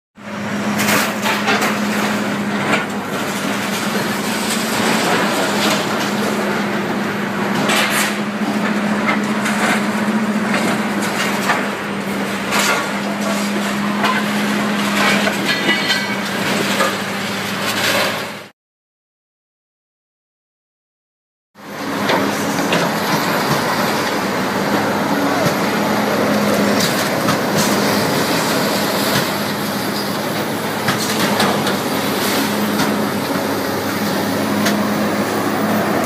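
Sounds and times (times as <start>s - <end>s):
heavy machinery humming: 0.2s - 18.5s, 21.6s - 36.0s
wood and scrap banging: 7.5s - 18.4s, 26.3s - 35.4s.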